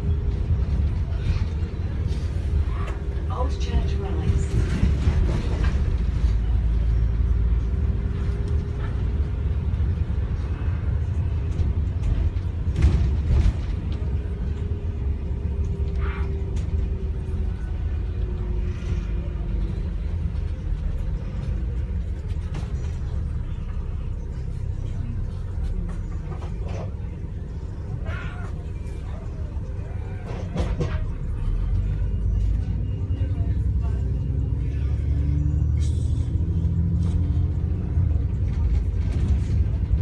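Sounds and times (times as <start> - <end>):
bus engine and road rumble: 0.0 - 40.0.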